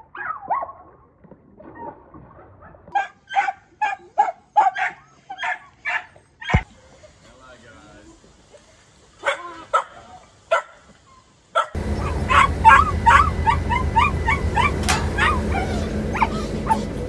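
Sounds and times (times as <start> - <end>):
small dogs barking and yipping: 0.0 - 0.9, 2.9 - 6.8, 9.2 - 17.0
steady low hum: 11.8 - 17.0
dog whining: 11.9 - 17.0.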